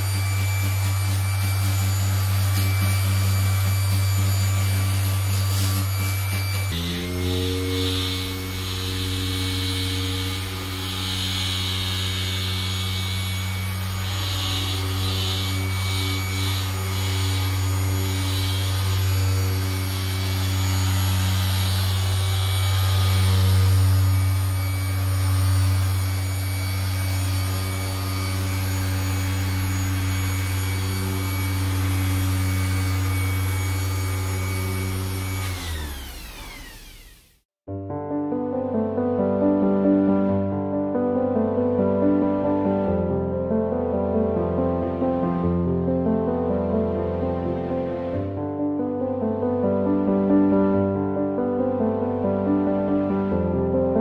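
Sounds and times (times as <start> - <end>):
orbital sander motor drone: 0.0 - 37.4.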